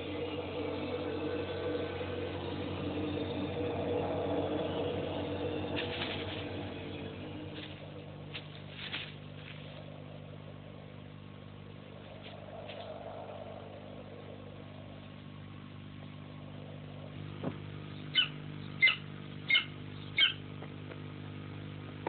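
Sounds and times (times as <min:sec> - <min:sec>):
low film soundtrack hum: 0:00.0 - 0:22.0
eagle yelping calls: 0:18.1 - 0:20.4.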